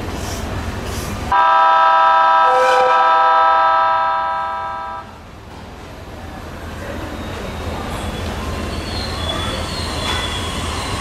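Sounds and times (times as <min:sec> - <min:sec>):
train horn chord: 0:01.3 - 0:05.2.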